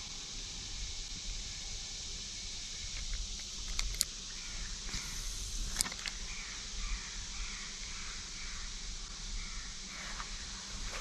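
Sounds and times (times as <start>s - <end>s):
high-pitched insect chorus: 0.0s - 11.0s
sharp clicks: 2.9s - 4.1s, 4.9s - 6.2s.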